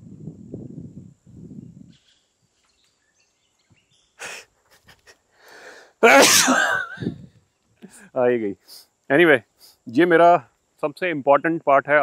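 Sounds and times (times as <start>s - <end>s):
man exhaling breathily: 4.2s - 4.6s, 5.3s - 6.0s.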